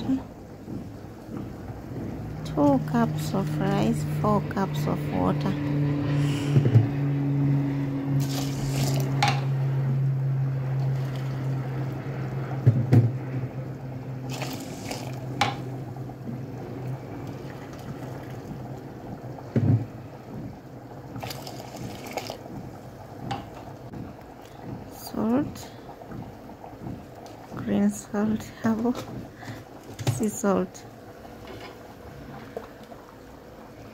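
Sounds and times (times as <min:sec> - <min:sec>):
low steady hum: 0:00.0 - 0:33.9
water pouring into a pot: 0:08.2 - 0:09.5, 0:10.6 - 0:12.4, 0:14.1 - 0:16.0, 0:16.7 - 0:19.1, 0:21.0 - 0:22.6.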